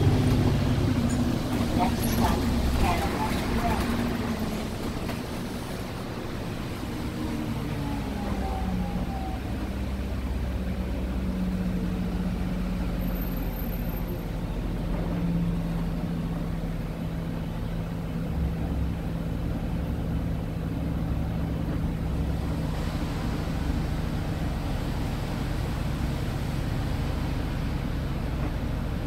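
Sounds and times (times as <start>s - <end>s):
bus engine hum and rumble: 0.0s - 29.0s.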